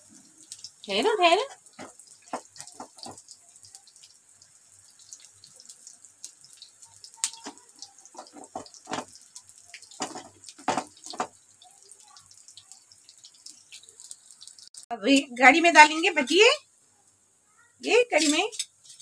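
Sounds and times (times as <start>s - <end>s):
fritters deep-frying in oil: 0.0s - 19.0s
crackling pops: 6.2s - 11.4s.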